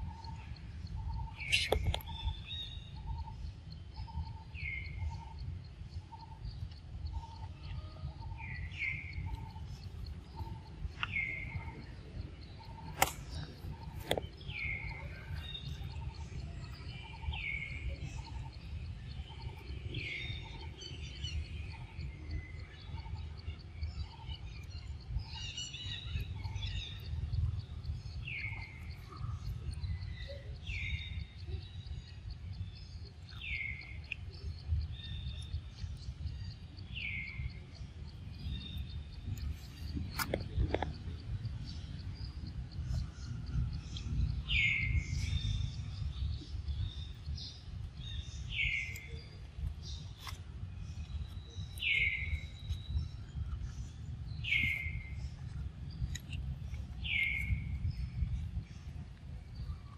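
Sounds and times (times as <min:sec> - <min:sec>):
low piping bird notes: 0:00.0 - 0:05.4
steady low rumble: 0:00.0 - 0:59.9
sharp clicks: 0:12.6 - 0:15.2.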